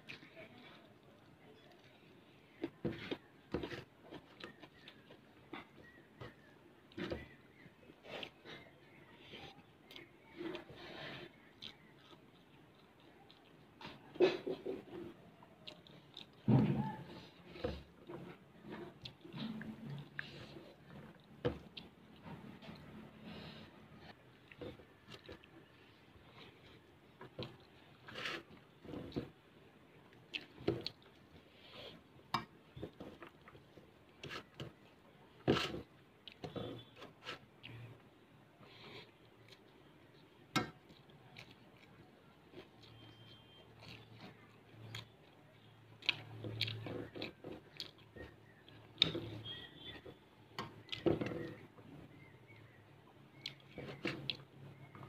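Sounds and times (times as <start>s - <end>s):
mouth chewing: 0.0s - 29.4s, 30.0s - 38.0s, 38.6s - 55.0s
food squishing: 0.0s - 55.0s
sharp clicks and wet smacks: 52.6s - 55.0s.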